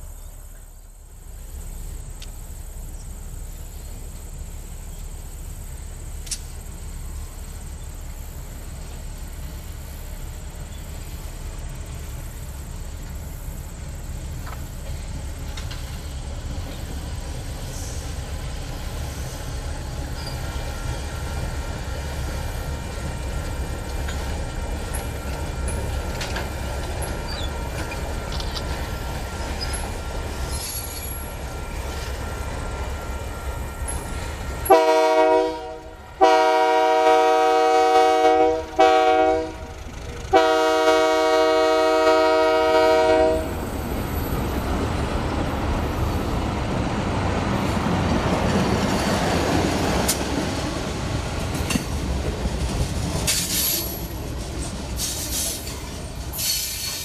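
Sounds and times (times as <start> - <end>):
diesel locomotive and wagons passing: 0.0 - 57.0
locomotive horn: 33.2 - 43.6.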